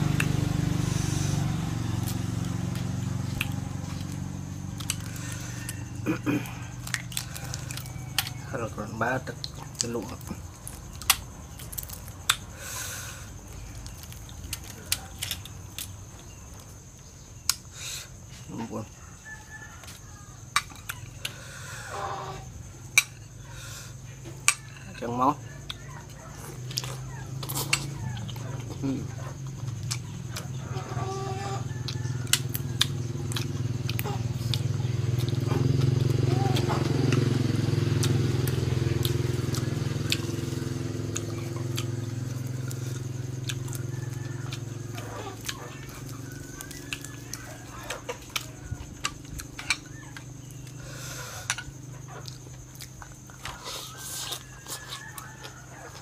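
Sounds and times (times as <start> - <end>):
low engine hum: 0.0 - 16.5, 25.4 - 53.4
herb sprigs snapping and chewing: 2.0 - 8.6, 9.2 - 12.5, 13.8 - 16.3, 38.0 - 50.8.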